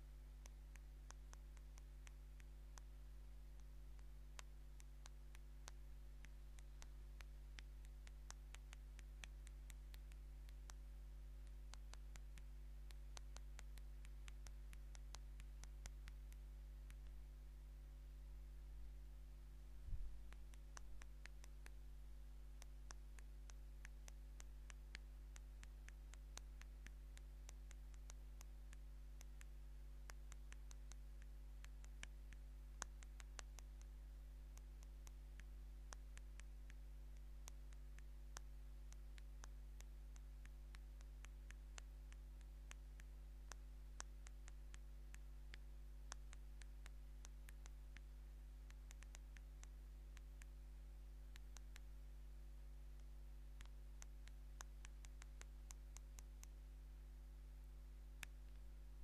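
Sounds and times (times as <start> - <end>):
steady low hum: 0.0 - 59.0.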